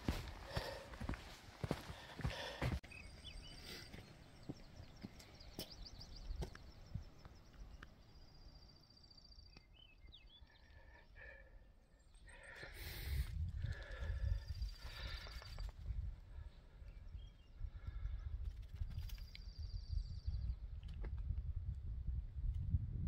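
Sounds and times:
bird chirps: 2.8 - 12.8.

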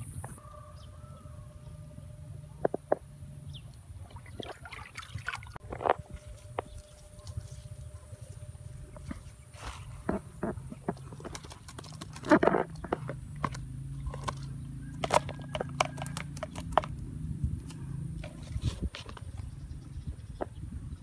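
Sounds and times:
low steady hum: 0.0 - 21.0
bamboo trap clicking and rattling: 15.0 - 17.0.

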